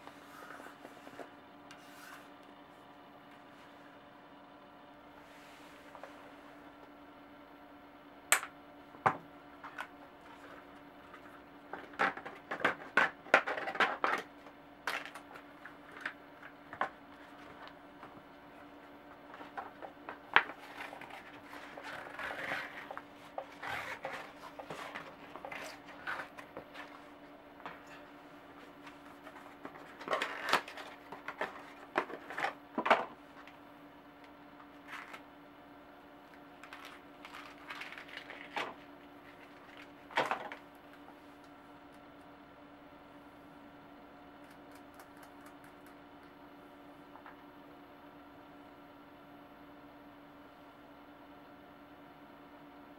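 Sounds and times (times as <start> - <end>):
cardboard and rubber rustling: 19.3 - 28.0.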